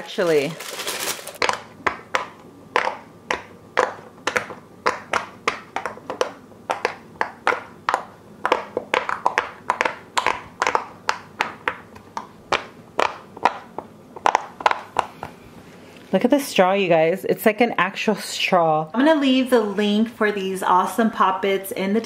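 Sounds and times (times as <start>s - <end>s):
fidget toy bubbles popping: 1.4s - 15.1s.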